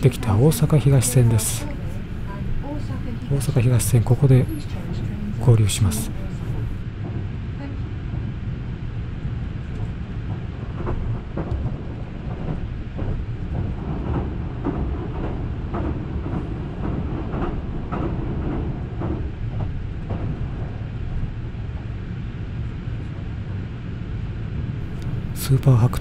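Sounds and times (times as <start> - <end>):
wheels clacking on track: 0.0 - 7.2, 9.8 - 21.1, 24.8 - 26.0
train ride rumble: 0.0 - 26.0.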